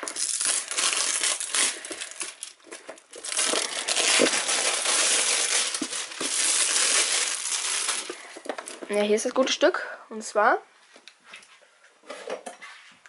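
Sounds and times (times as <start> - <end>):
plastic film crinkling: 0.0 - 9.2.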